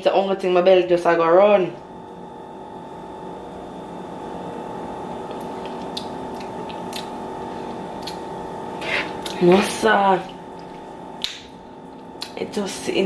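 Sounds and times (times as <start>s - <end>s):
steady tonal hum: 0.0s - 13.0s.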